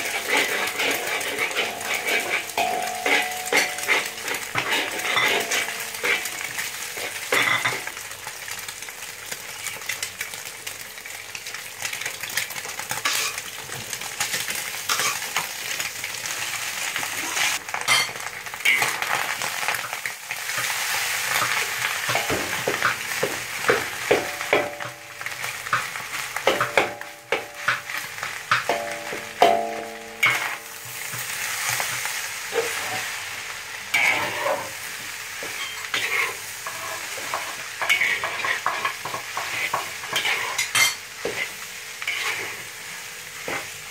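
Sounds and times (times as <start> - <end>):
metal spatula scraping wok: 0.0 - 7.9, 13.0 - 13.5, 14.9 - 15.4, 17.2 - 19.3, 26.4 - 33.2, 33.9 - 42.8
food sizzling in hot oil: 0.0 - 43.9.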